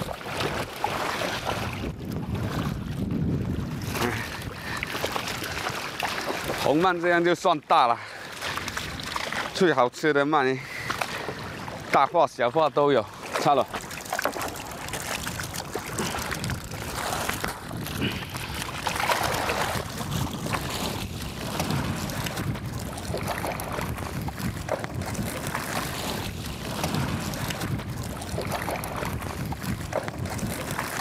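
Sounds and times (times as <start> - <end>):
water streaming off net: 0.0 - 1.9, 13.2 - 31.0
wind buffeting microphone: 0.0 - 6.7, 14.6 - 31.0
water sloshing against hull: 0.0 - 31.0.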